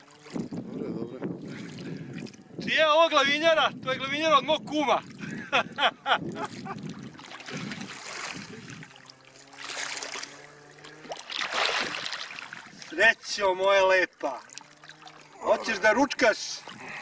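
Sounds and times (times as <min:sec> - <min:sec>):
fish thrashing in water: 0:06.2 - 0:17.0.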